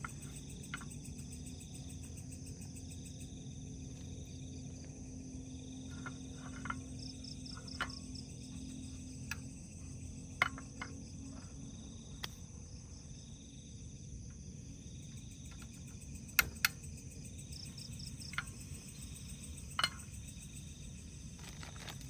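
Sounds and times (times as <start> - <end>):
crickets chirping: 0.0 - 22.0
sharp clicks: 16.3 - 16.8.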